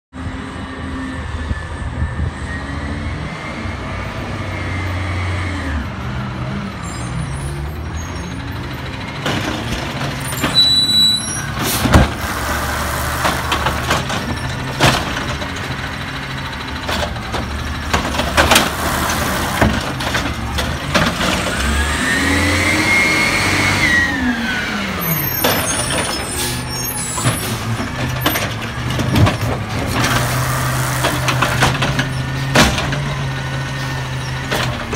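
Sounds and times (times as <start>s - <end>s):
garbage truck engine revving: 2.4s - 34.9s
air brakes hissing: 25.7s - 27.6s.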